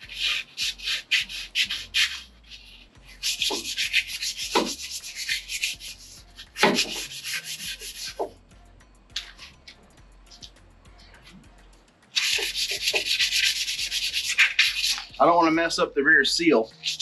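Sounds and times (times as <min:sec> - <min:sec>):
sandpaper rubbing on metal: 0:00.0 - 0:08.4, 0:12.1 - 0:17.0.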